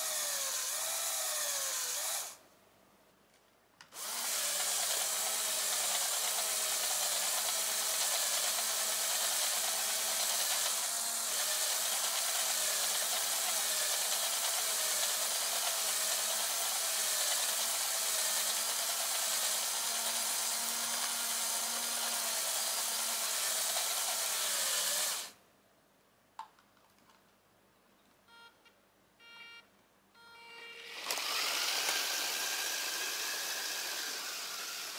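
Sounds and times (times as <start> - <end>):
short beeps: 28.3 - 30.9
electric motor whirring: 30.6 - 34.9.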